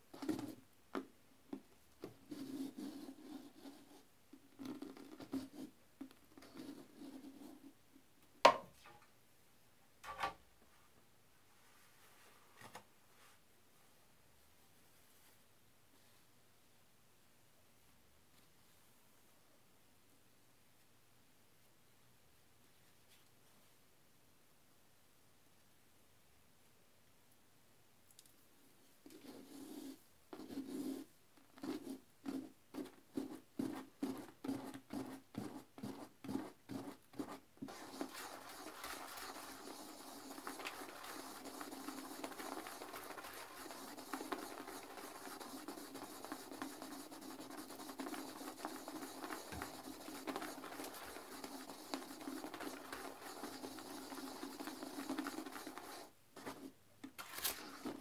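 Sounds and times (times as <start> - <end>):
toilet brush scrubbing bowl: 29.2 - 58.0.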